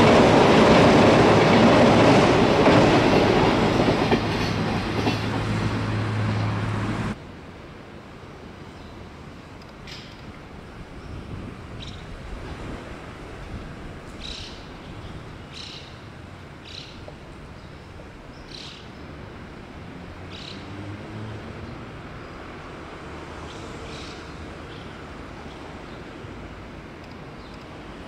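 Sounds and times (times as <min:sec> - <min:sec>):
freight train rumble: 0:00.0 - 0:28.0
wind noise: 0:10.2 - 0:16.3.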